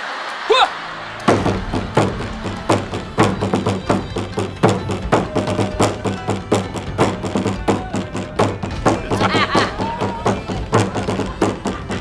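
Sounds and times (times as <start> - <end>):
barrel drum struck with sticks: 1.2 - 12.0.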